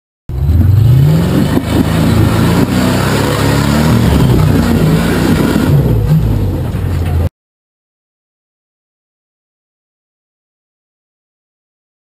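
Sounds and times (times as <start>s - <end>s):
buggy engine revving hard: 0.3s - 7.1s.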